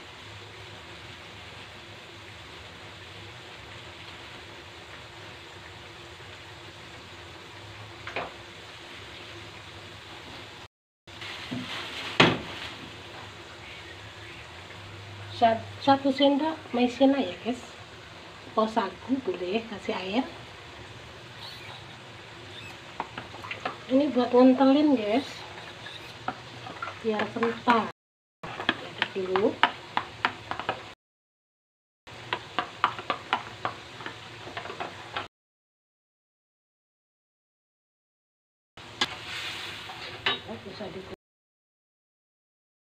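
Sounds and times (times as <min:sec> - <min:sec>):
sauce simmering in a wok: 0:00.0 - 0:27.0, 0:28.5 - 0:31.0, 0:32.1 - 0:35.2, 0:38.8 - 0:41.0
soft sizzle: 0:00.0 - 0:27.9, 0:28.5 - 0:31.0, 0:32.1 - 0:35.3, 0:38.8 - 0:41.2.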